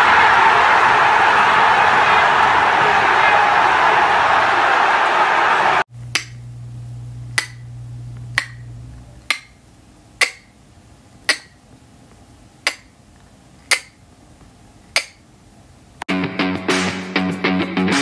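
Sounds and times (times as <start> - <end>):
low hum: 5.9 - 12.6.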